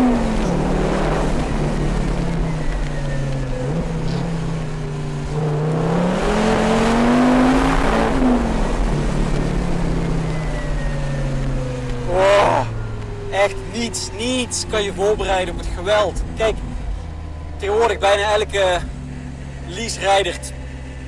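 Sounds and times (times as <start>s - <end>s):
car engine accelerating: 0.0s - 21.0s
person exclaiming: 12.1s - 12.8s.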